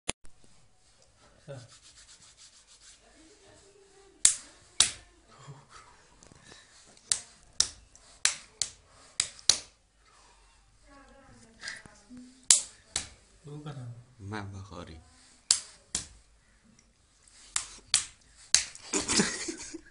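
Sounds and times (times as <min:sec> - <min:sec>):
hand slaps on palms: 0:04.2 - 0:05.0, 0:07.1 - 0:09.8, 0:12.5 - 0:13.2, 0:15.5 - 0:16.2, 0:17.5 - 0:18.8.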